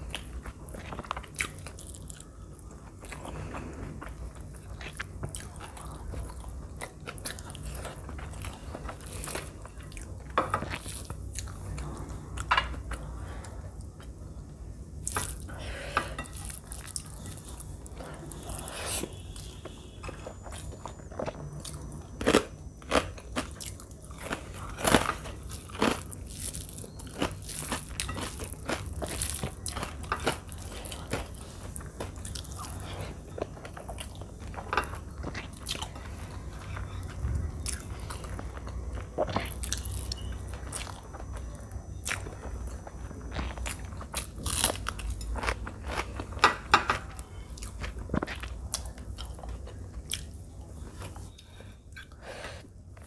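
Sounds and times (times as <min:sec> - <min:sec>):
crunching of crisp wafers: 0:15.0 - 0:51.6
chewing and biting food: 0:20.3 - 0:50.4.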